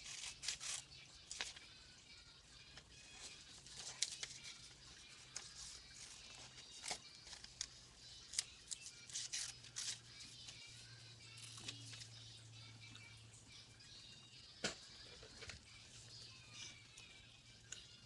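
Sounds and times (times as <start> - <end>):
paper and tape crinkling: 0.0 - 1.7, 2.8 - 12.2.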